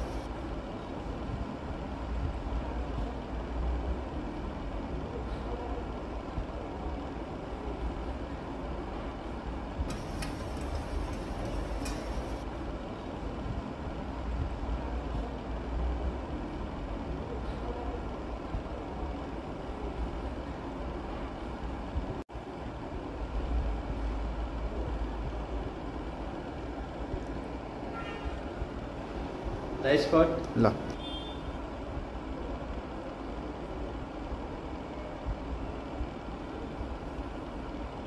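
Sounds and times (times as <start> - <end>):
clicks: 9.9 - 12.4.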